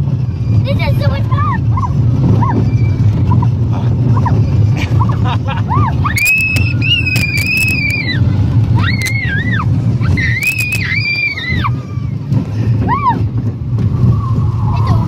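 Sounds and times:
roller coaster rumbling: 0.0 - 15.0
wind: 0.0 - 15.0
riders screaming: 5.7 - 13.3.

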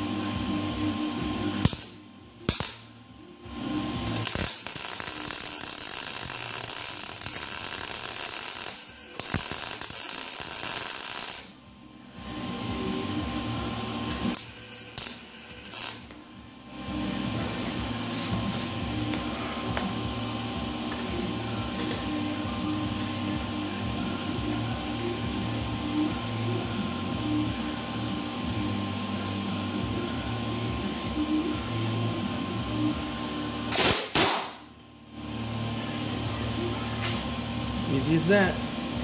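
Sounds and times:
steady hum: 0.0 - 39.0
welding arc crackling: 1.6 - 2.9, 4.0 - 11.6, 14.1 - 16.2, 37.0 - 39.0.

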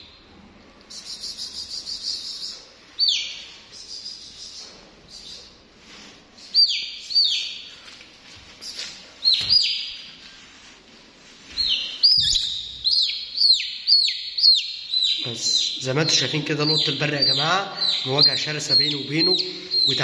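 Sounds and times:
chick peeping: 1.0 - 5.4, 11.6 - 20.0.

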